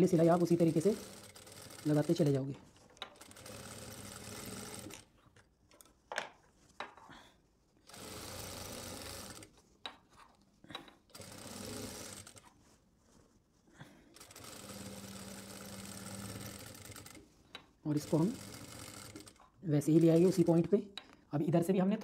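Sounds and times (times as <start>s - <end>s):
sewing machine stitching: 0.0s - 5.1s, 7.8s - 9.5s, 11.1s - 12.5s, 14.1s - 17.3s, 17.9s - 20.7s.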